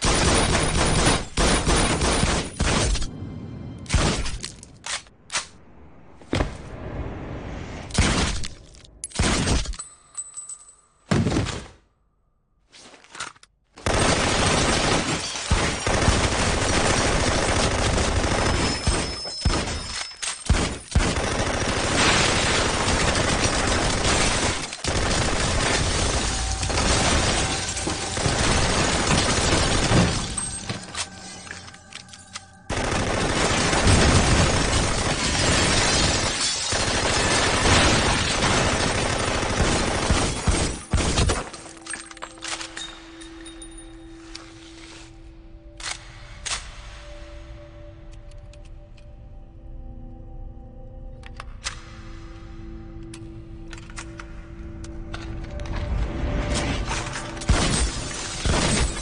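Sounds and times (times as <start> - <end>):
glass shattering: 25.8 - 32.5, 34.7 - 37.0, 40.2 - 44.0, 56.9 - 59.0.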